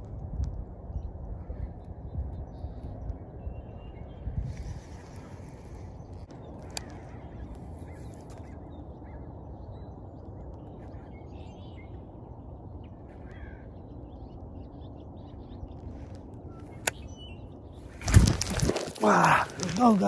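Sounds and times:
steady low rumble: 0:00.0 - 0:20.0
faint bird calls: 0:12.8 - 0:20.0.

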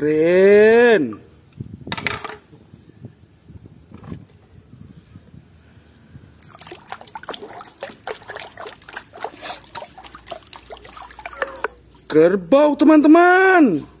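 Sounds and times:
toy swishing through water: 0:06.4 - 0:12.1
water splashes and drips: 0:06.4 - 0:12.1.

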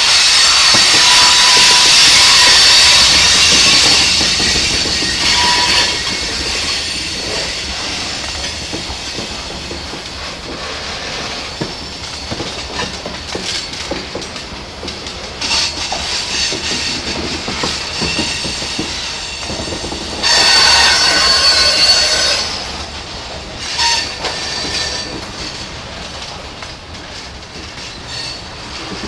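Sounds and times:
steel wheels squealing on rails: 0:00.0 - 0:29.0
wheels clicking over rail joints: 0:00.0 - 0:29.0.

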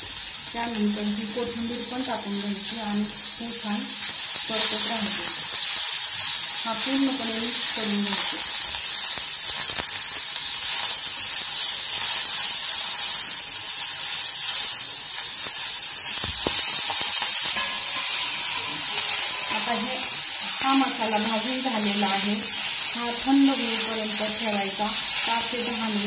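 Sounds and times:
food sizzling in hot oil: 0:00.0 - 0:26.0
metal spatula scraping pan: 0:16.4 - 0:26.0.

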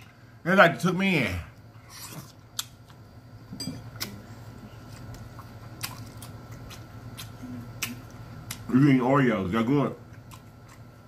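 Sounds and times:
steady low hum: 0:00.0 - 0:11.0
chewing close to microphone: 0:04.9 - 0:08.7.

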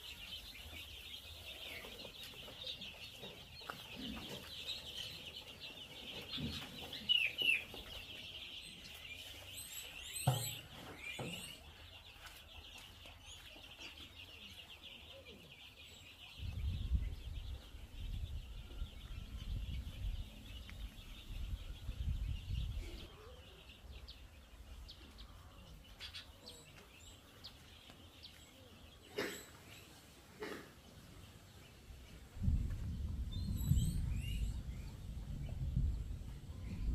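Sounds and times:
chicks peeping: 0:00.0 - 0:36.9
low rumble: 0:32.4 - 0:36.9.

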